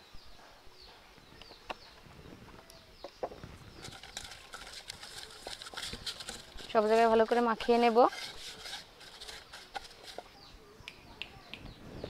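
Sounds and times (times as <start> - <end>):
paper liner crinkling: 3.8 - 10.3.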